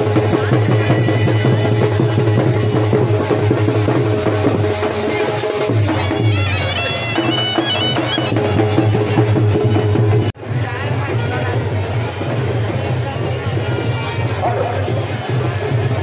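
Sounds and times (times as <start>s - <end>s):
reed wind instrument melody: 0.0s - 10.3s
steady drumming: 0.0s - 16.0s.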